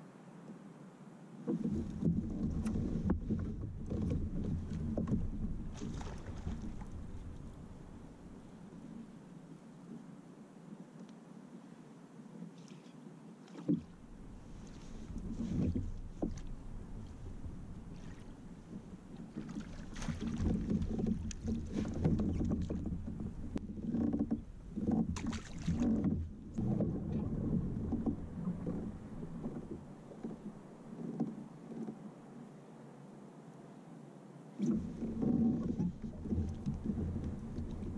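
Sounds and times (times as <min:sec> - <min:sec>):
wind rumble on microphone: 0:01.5 - 0:09.1, 0:13.7 - 0:32.0, 0:34.6 - 0:37.9.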